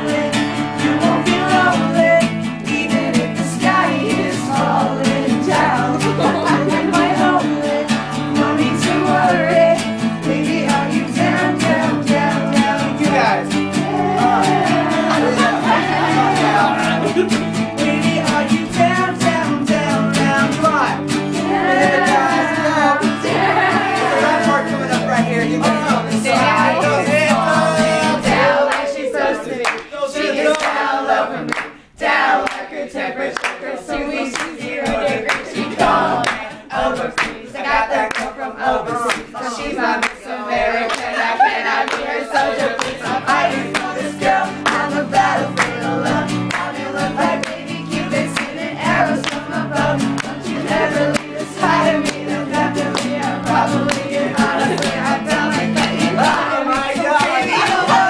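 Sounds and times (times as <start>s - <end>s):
strummed acoustic guitars: 0.0s - 28.8s, 34.6s - 39.2s, 41.2s - 58.0s
group of men singing: 0.0s - 58.0s
hand claps: 29.6s - 29.9s, 30.5s - 30.8s, 31.5s - 31.7s, 32.4s - 32.6s, 33.4s - 36.5s, 37.2s - 37.4s, 38.0s - 38.3s, 39.0s - 39.3s, 40.9s - 41.1s, 41.8s - 42.1s, 42.7s - 57.8s.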